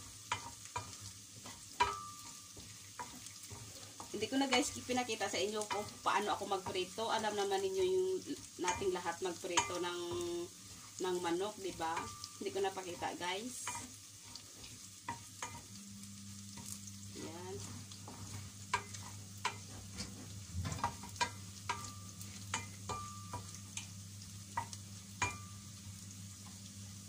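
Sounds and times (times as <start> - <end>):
wooden spoon knocking and scraping pan: 0.0 - 15.8, 16.5 - 23.9
garlic sizzling in hot oil: 0.0 - 27.0
low steady hum: 15.1 - 27.0.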